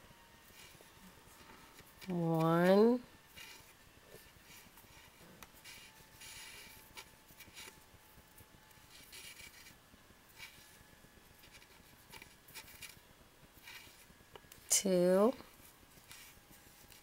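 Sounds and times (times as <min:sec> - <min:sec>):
floss rubbing and swishing: 0:15.5 - 0:17.0.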